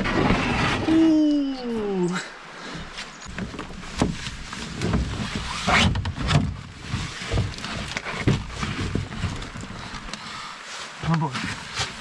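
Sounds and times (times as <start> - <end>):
canoe hull knocks and rustles: 2.6 - 12.0.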